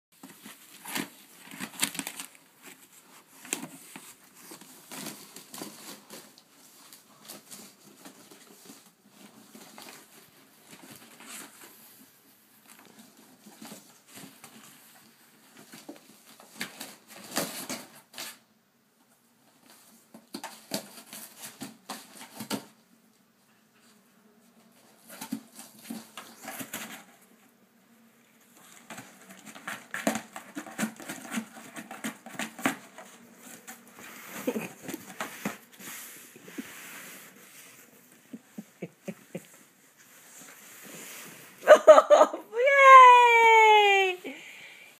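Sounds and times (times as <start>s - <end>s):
dog rummaging in cardboard: 28.6s - 36.2s.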